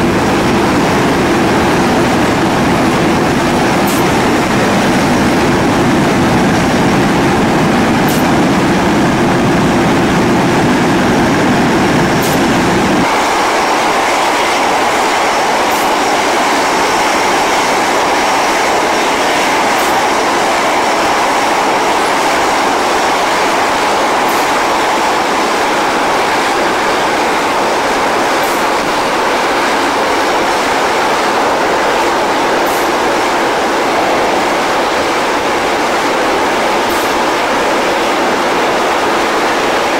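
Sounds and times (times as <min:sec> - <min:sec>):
deep engine rumble: 0:00.0 - 0:14.0
aircraft engine roar: 0:00.0 - 0:39.9.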